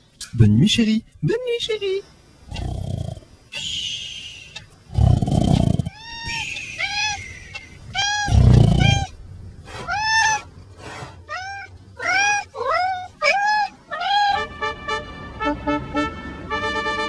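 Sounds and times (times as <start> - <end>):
cat meowing: 7.9 - 9.1, 11.3 - 14.4.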